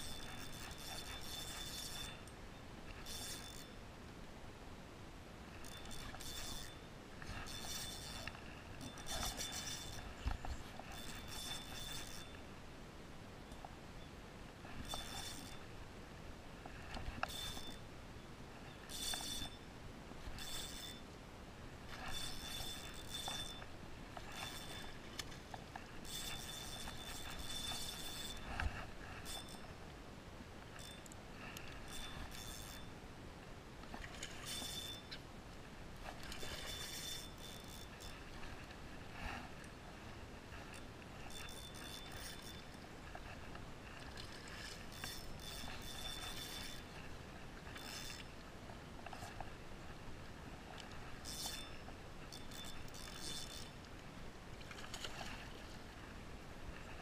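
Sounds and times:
spinning reel whirring: 0:00.0 - 0:02.3, 0:03.0 - 0:03.8, 0:05.6 - 0:12.4, 0:14.8 - 0:15.6, 0:17.2 - 0:17.8, 0:18.9 - 0:19.6, 0:20.3 - 0:21.1, 0:21.9 - 0:25.3, 0:26.0 - 0:29.7, 0:30.8 - 0:32.9, 0:34.4 - 0:35.0, 0:36.2 - 0:38.4, 0:40.6 - 0:43.2, 0:44.1 - 0:47.0, 0:47.6 - 0:48.3, 0:51.2 - 0:53.8.

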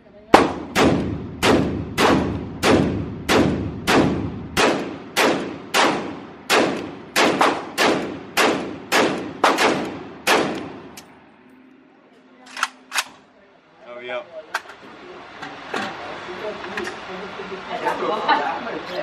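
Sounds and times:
gunshots echoing indoors: 0:00.3 - 0:11.0.

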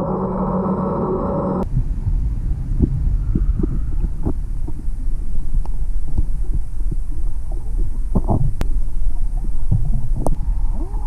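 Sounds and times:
muffled underwater rumble: 0:00.0 - 0:11.0.

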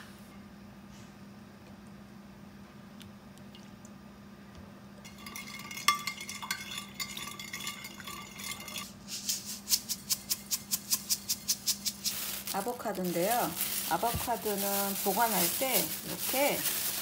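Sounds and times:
spoon clinking in glass dish: 0:05.1 - 0:08.9.

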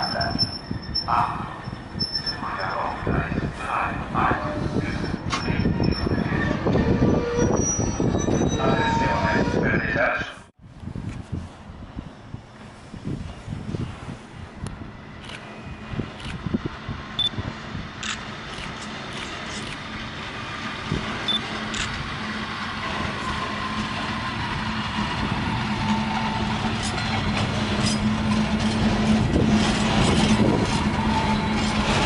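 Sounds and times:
train wheels rumbling on rails: 0:00.0 - 0:09.8, 0:11.1 - 0:32.0
electric locomotive hum: 0:10.8 - 0:32.0.

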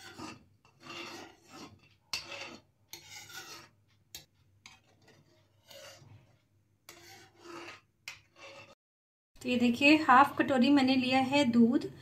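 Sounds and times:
metal ladle scraping steel pot: 0:00.0 - 0:08.8.

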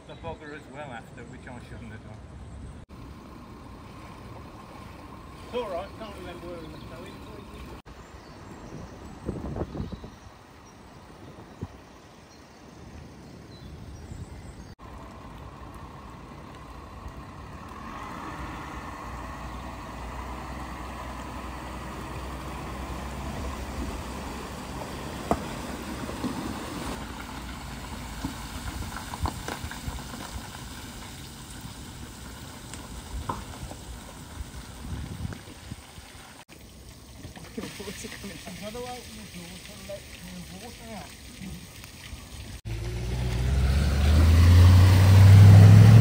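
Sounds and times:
floodwater rushing: 0:14.8 - 0:46.0.

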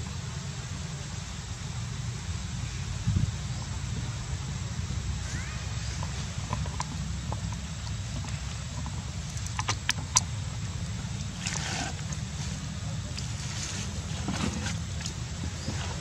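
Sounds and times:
wind rumble on microphone: 0:01.6 - 0:05.2.

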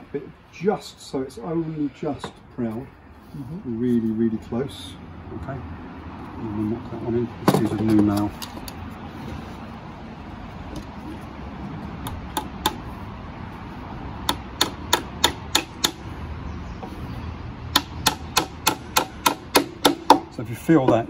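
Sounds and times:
hammer striking a nail: 0:12.0 - 0:12.8, 0:14.2 - 0:16.1, 0:17.7 - 0:20.3.

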